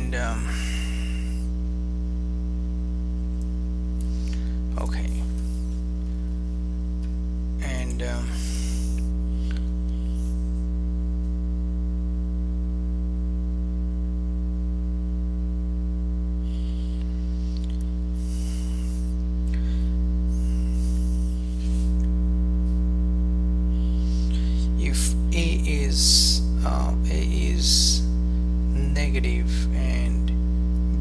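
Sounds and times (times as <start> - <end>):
electrical mains hum: 0.0 - 31.0.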